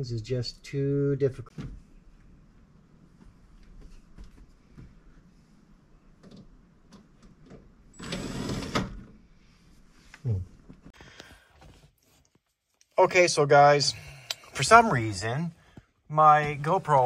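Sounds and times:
faint handling knocks and clicks: 0:06.1 - 0:07.7.

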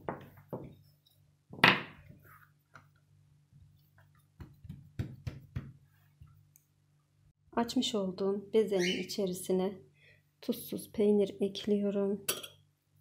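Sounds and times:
dough slapping on mat: 0:04.0 - 0:05.8
rolling pin thumping dough: 0:04.3 - 0:05.8.

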